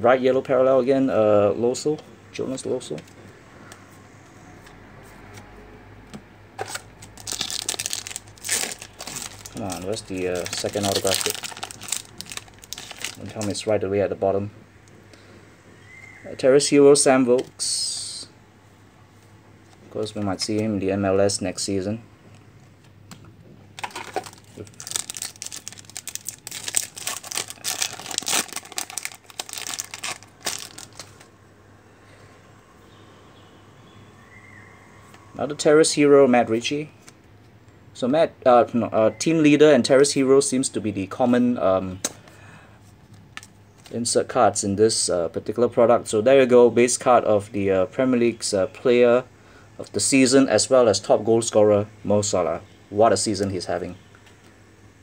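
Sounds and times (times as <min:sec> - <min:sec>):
foil wrapper crinkling and tearing: 0:06.6 - 0:13.6, 0:23.8 - 0:31.3.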